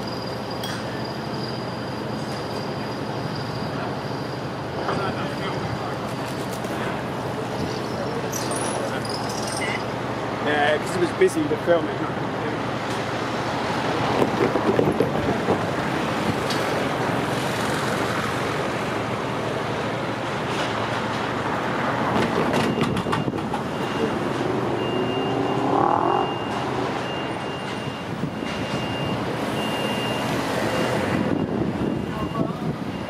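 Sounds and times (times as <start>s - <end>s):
train wheels rumbling on rail: 10.6s - 33.0s
high beep: 22.6s - 30.2s
rising whine: 23.8s - 27.7s.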